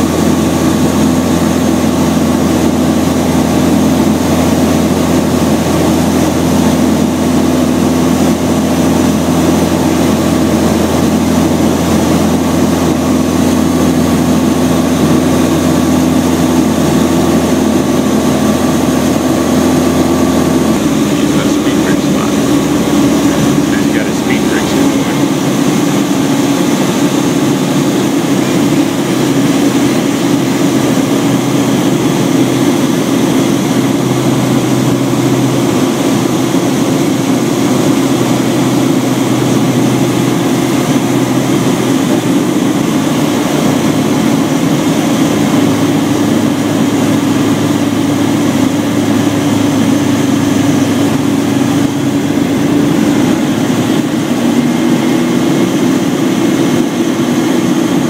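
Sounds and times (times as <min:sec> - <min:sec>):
propeller plane engine drone: 0:00.0 - 0:58.0
rushing airflow: 0:12.6 - 0:33.8.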